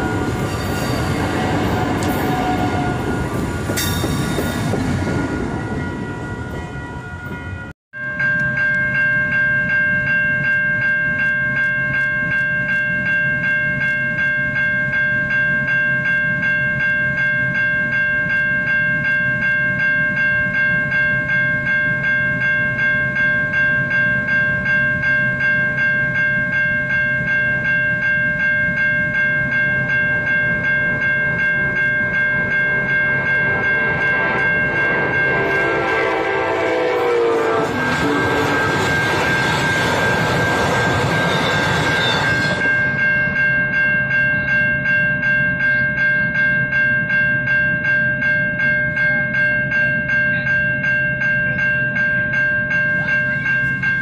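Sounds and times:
passenger train passing: 0.0 - 7.7, 23.1 - 45.3, 51.9 - 54.0
railroad crossing bell ringing: 0.0 - 54.0.

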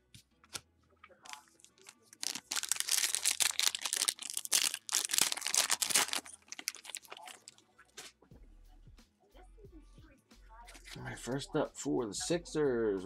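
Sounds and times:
foil wrapper tearing and crinkling: 1.3 - 7.6.

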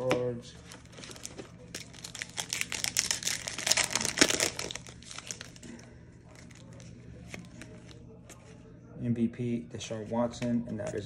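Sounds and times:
foil wrapper crinkling: 0.7 - 8.0
wrapper torn open: 0.8 - 8.0.

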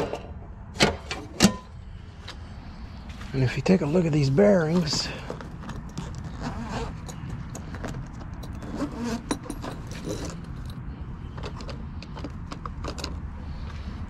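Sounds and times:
hand tools clinking in a bag: 4.8 - 13.1.

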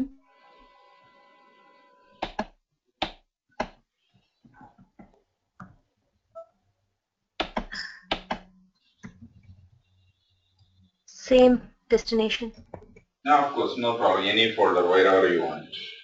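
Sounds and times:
keyboard and mouse clicks: 2.2 - 3.8, 7.4 - 9.5, 12.5 - 13.1.

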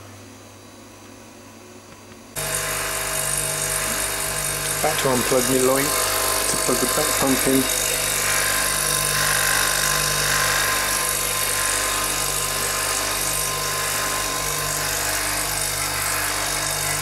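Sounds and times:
vacuum pump humming and hissing: 0.0 - 17.0.

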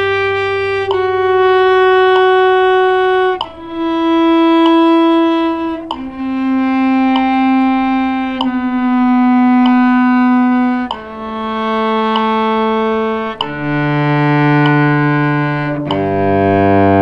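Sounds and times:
cello bowed notes: 0.0 - 17.0.

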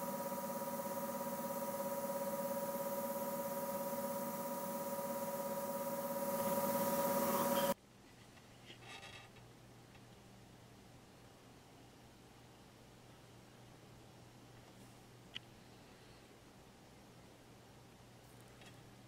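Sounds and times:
airbrush hissing: 0.0 - 7.8
steady mechanical humming: 0.0 - 7.8.

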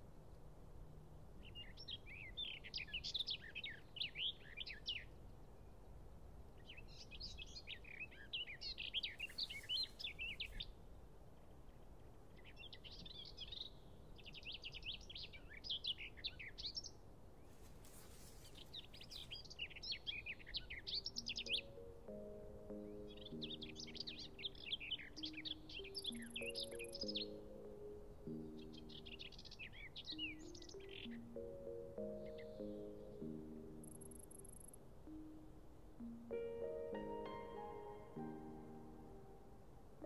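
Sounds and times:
songbird twittering: 18.4 - 35.3.

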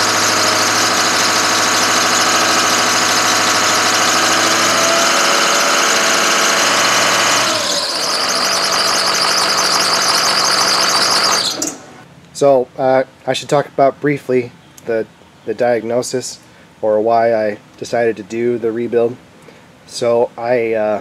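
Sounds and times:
diesel engine running: 0.0 - 12.0
high-pitched turbo whine: 0.0 - 12.0.

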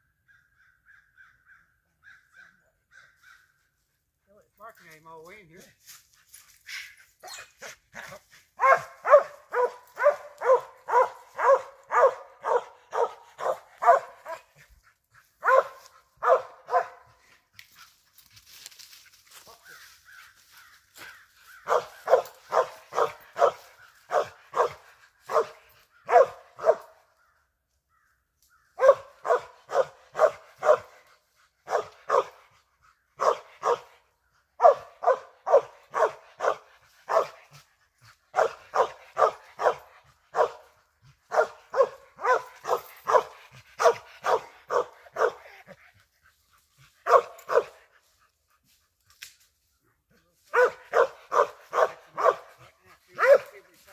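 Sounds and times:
dog barking: 7.3 - 14.6, 15.4 - 17.2, 21.6 - 27.0, 28.8 - 32.6, 33.2 - 37.7, 38.3 - 45.8, 47.0 - 47.9, 50.5 - 53.6.

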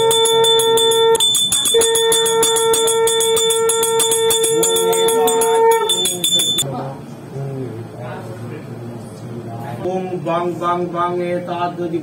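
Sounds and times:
hand bell ringing rapidly: 0.0 - 6.6
steady held lower tone: 0.0 - 6.7.

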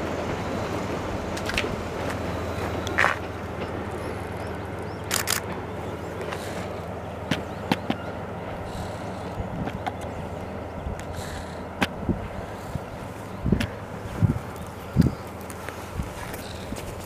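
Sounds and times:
locomotive low drone: 0.0 - 17.0
sharp clicks: 5.0 - 5.6.

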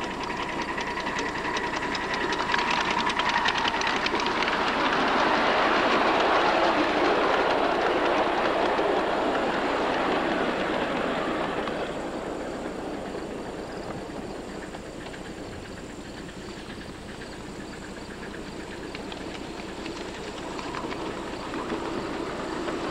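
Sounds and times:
train wheels rumbling on rail: 0.0 - 22.9
faint clicking: 18.2 - 22.0.

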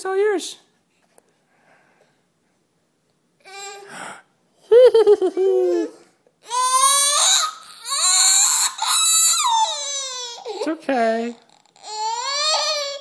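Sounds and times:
toddler crying: 5.5 - 13.0.

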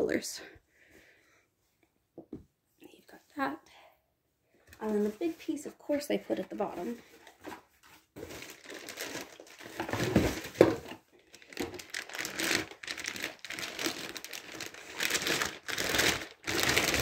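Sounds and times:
packaging crinkling and rustling: 6.3 - 17.0.

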